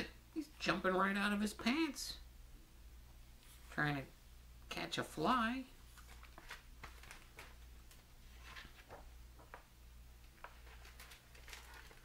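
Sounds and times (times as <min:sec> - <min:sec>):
low steady hum: 0:00.0 - 0:12.0
book pages turning: 0:05.8 - 0:09.6, 0:10.2 - 0:12.0.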